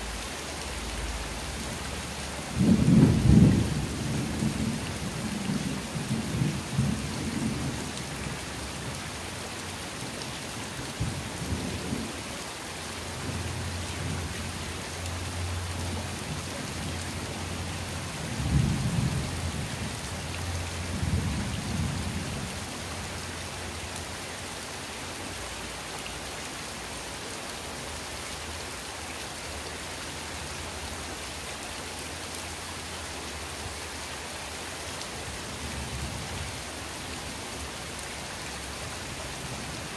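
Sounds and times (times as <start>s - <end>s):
rain on concrete: 0.0s - 39.9s
thunder rumbling: 2.6s - 7.8s.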